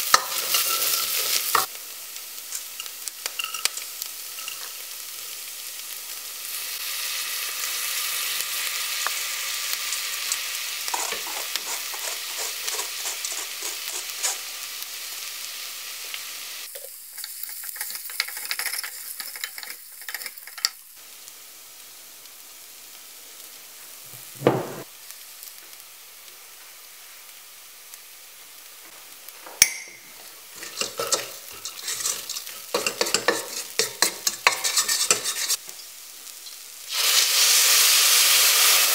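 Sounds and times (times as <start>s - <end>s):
lentils sizzling in hot oil: 0.0s - 38.9s
spoon scraping pot: 10.9s - 14.5s, 17.2s - 20.8s, 30.5s - 35.6s
sharp knocks: 24.4s - 24.8s.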